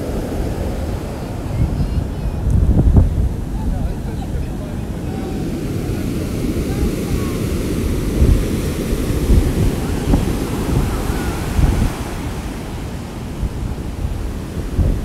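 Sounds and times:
heavy surf crashing: 0.0s - 15.0s
wind buffeting microphone: 0.0s - 15.0s.

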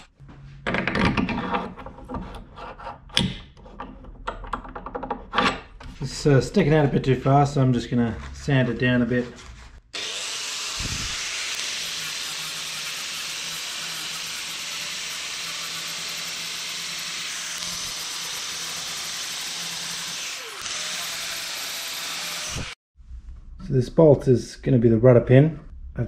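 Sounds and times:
orbital sander hissing: 10.0s - 22.8s.

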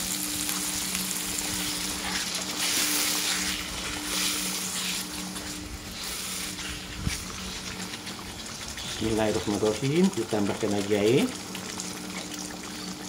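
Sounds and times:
steady low hum: 0.0s - 10.3s
chicken sizzling in a wok: 0.0s - 13.0s
wooden spatula stirring liquid: 1.5s - 10.6s.

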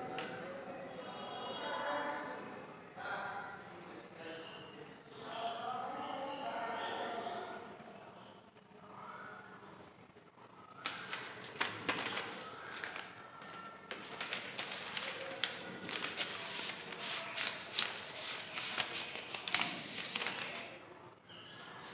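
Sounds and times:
rustling: 10.8s - 20.7s.

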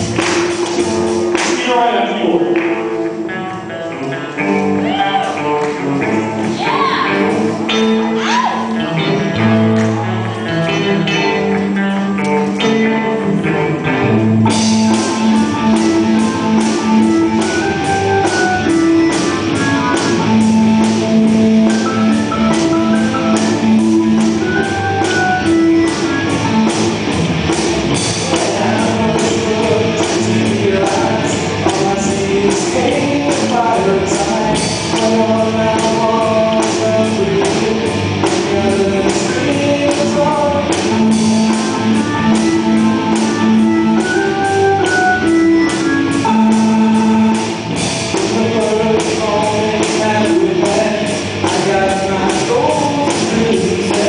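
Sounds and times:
drums with steady beat: 0.0s - 2.4s, 14.3s - 54.0s
electric guitar: 0.0s - 54.0s
rock band playing live: 0.0s - 54.0s.

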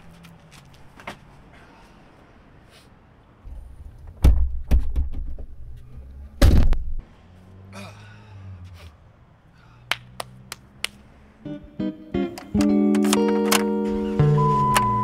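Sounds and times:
car hatch thudding shut: 6.4s - 6.8s.

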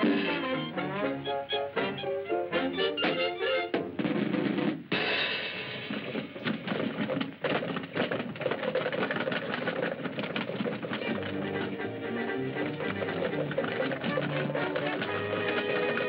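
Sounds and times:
cartoon music: 0.0s - 3.8s
cartoon rattling clatter: 6.1s - 11.4s, 12.6s - 16.0s.

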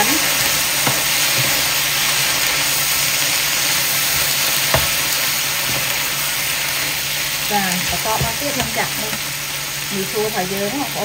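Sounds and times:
stir-fry sizzling in a pan: 0.0s - 11.0s.

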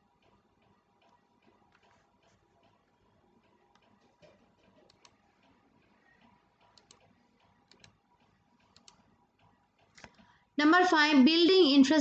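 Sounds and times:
soft clicks: 4.6s - 5.6s, 6.2s - 10.3s.

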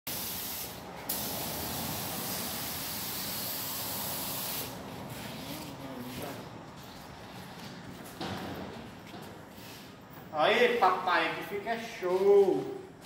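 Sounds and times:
paint spray gun hissing: 0.1s - 4.8s.

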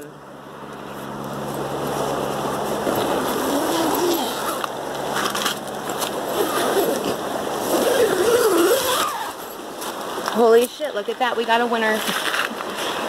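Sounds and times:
tent fabric rustling: 1.0s - 10.6s
zipper being zipped: 3.1s - 9.5s.

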